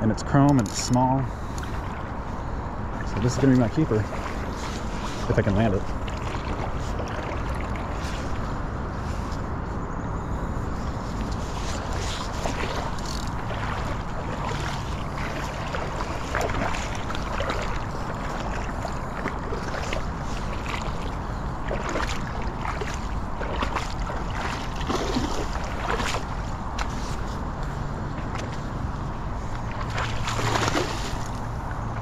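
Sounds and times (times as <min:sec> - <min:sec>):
fish splashing in river: 0:04.0 - 0:08.4, 0:11.4 - 0:27.3, 0:29.6 - 0:31.6.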